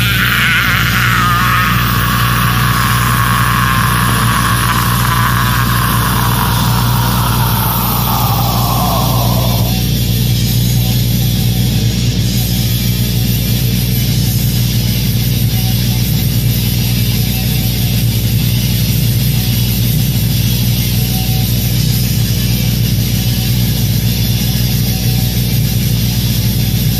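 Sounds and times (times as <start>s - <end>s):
death metal vocal scream: 0.0s - 9.8s.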